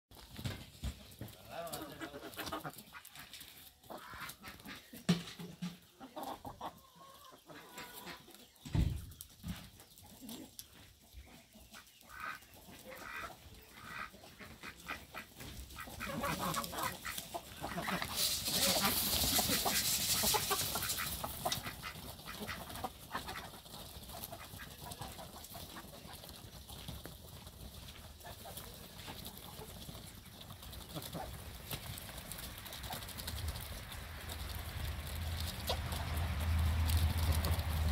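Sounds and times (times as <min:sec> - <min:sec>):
chickens clucking: 0:00.2 - 0:37.9
beaks tapping the ground: 0:07.8 - 0:37.9.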